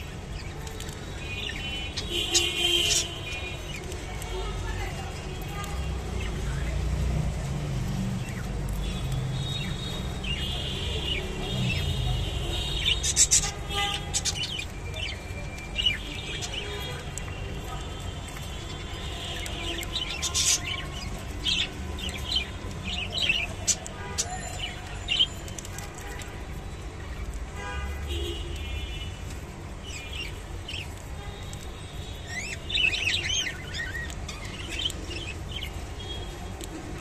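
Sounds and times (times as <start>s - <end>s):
budgerigars chirping and warbling: 0.4s - 3.9s, 9.4s - 17.4s, 19.3s - 26.0s, 32.1s - 35.9s.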